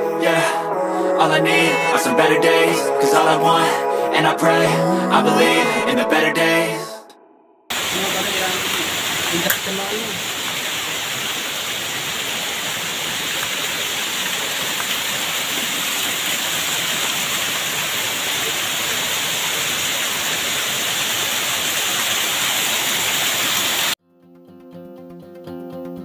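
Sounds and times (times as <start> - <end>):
water rushing: 7.7 - 24.0
acoustic guitar music: 24.0 - 26.0.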